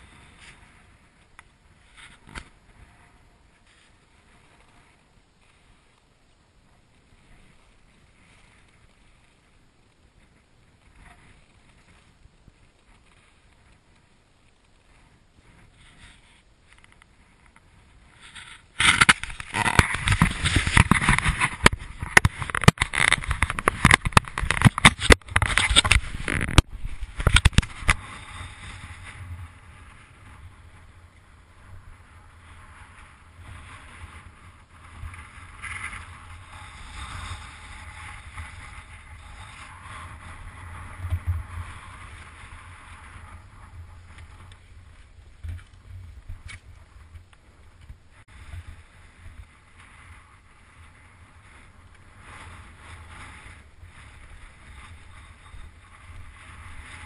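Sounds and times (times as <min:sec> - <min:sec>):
wind buffeting microphone: 0:16.6 - 0:57.0.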